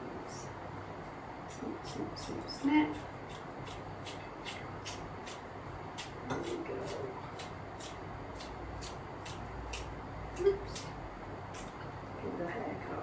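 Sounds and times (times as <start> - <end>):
scissors snipping spring onions: 6.0 - 10.9.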